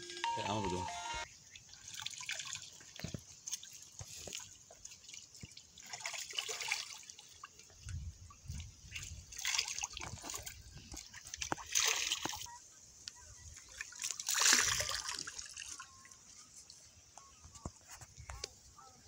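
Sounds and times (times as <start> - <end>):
water pouring splashily: 1.8 - 7.5, 9.0 - 12.5, 13.9 - 15.8.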